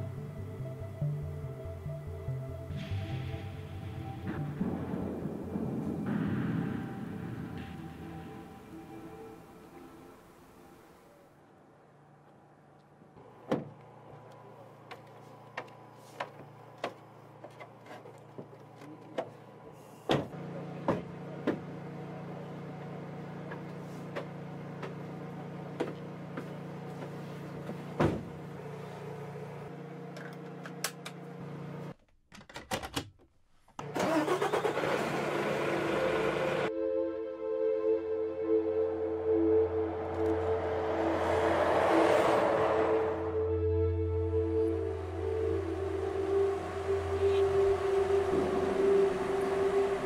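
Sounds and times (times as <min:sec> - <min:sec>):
truck engine running: 0:38.4 - 0:50.0.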